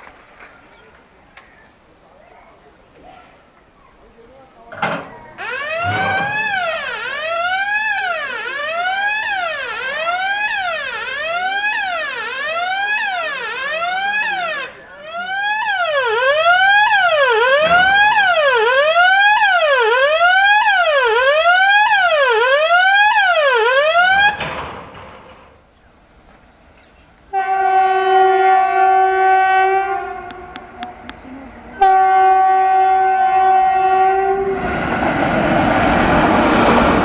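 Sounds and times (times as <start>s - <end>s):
level-crossing warning siren wailing: 5.4s - 24.4s, 27.3s - 34.8s.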